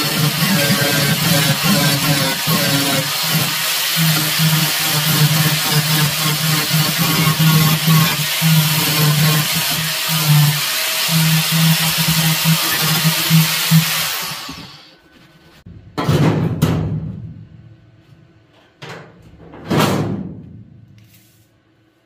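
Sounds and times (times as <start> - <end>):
grinder spinning down: 0.0 - 14.9
angle grinder grinding metal: 0.0 - 15.0.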